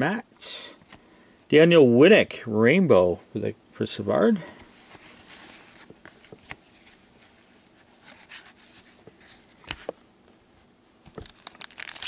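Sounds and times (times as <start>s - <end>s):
cards clicking and rustling: 11.0s - 12.0s.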